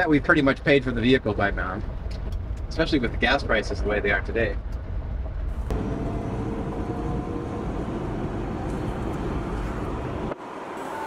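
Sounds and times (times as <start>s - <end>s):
road and wind noise: 0.0s - 11.0s
faint steady whine: 5.6s - 10.4s.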